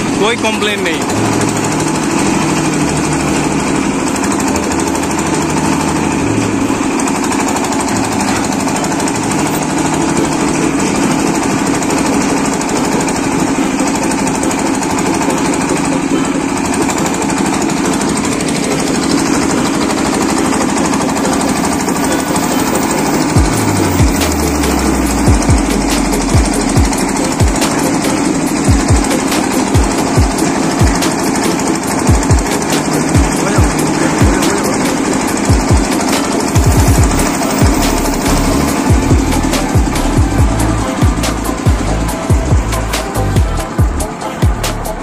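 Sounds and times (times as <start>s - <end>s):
concrete mixer engine running: 0.0s - 45.0s.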